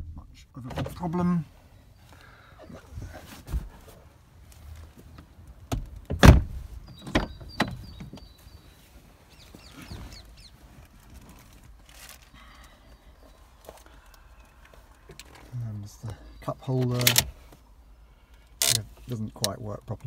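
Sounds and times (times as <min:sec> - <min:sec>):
knocks and thumps climbing into car: 0:02.9 - 0:04.0, 0:05.0 - 0:08.4
car door shutting: 0:05.7 - 0:08.2.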